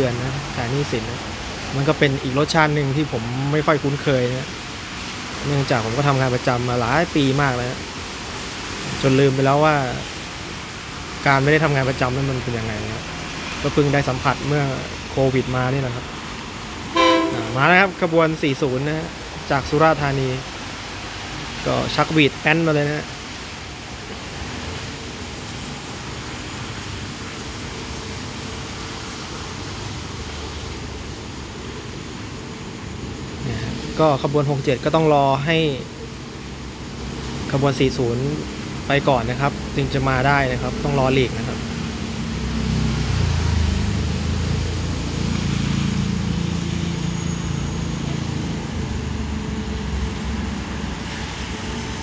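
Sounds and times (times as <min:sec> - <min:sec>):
rain falling: 0:00.0 - 0:16.9, 0:17.8 - 0:52.0
diesel train engine rumbling: 0:10.1 - 0:19.5, 0:43.0 - 0:52.0
distant train rumbling: 0:13.8 - 0:18.8.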